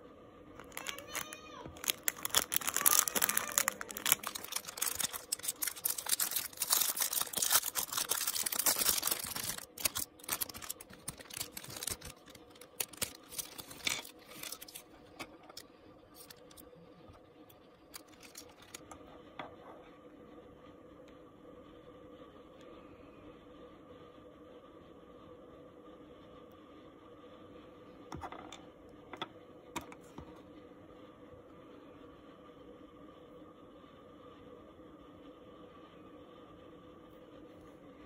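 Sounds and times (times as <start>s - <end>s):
plastic bags crinkling: 0.6s - 14.8s, 18.0s - 18.8s.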